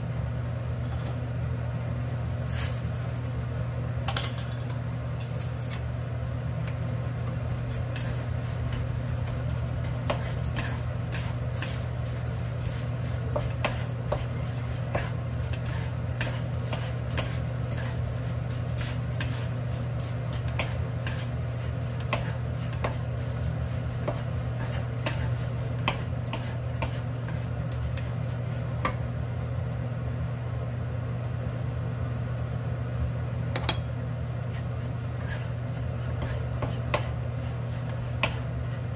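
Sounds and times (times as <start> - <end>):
steady low hum: 0.0 - 38.9
wooden spatula tapping pan: 6.7 - 18.0, 18.7 - 28.1, 36.2 - 37.2, 37.8 - 38.5.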